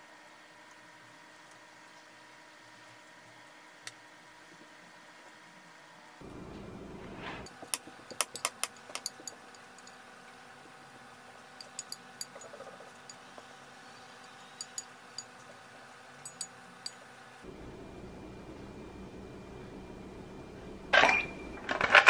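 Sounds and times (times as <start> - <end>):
chopsticks clicking on ceramic dish: 7.7 - 10.0, 11.6 - 13.2.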